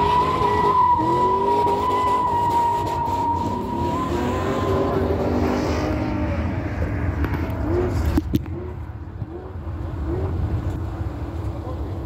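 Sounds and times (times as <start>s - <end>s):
tires squealing: 0.0s - 8.7s
car engine revving: 0.0s - 11.4s.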